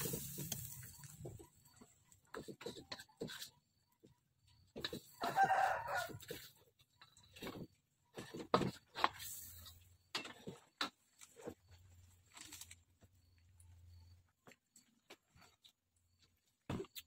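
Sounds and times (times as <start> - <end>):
spatula scraping a wok: 0.0 - 4.0, 4.6 - 10.6
rooster crowing: 5.2 - 6.2.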